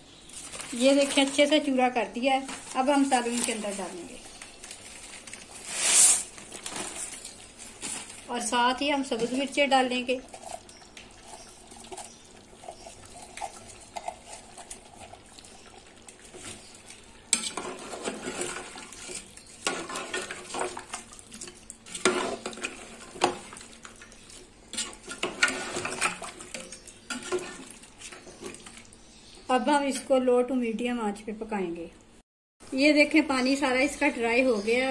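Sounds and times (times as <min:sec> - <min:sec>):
spoon scraping metal pot: 0:17.3 - 0:23.5, 0:24.7 - 0:28.6.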